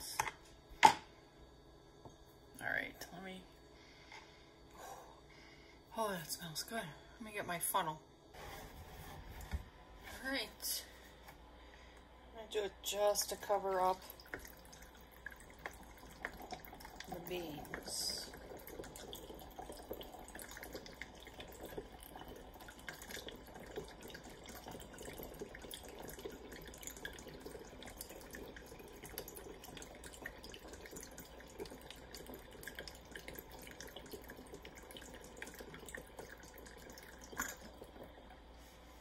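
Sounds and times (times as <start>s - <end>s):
liquid trickling into bottle: 14.0s - 38.3s.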